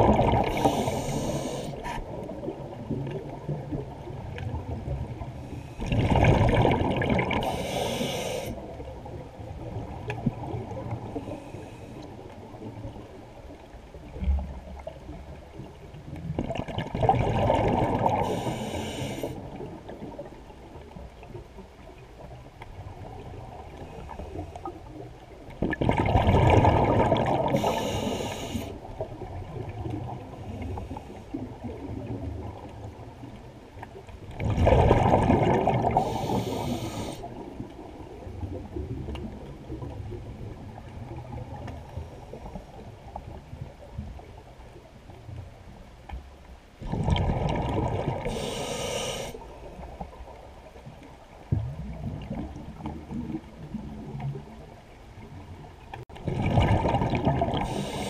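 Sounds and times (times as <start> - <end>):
diver exhaling bubbles: 0.0 - 2.6, 5.8 - 8.6, 25.7 - 28.4, 34.4 - 37.2, 46.8 - 49.4, 56.2 - 58.0
underwater water noise: 0.0 - 58.0.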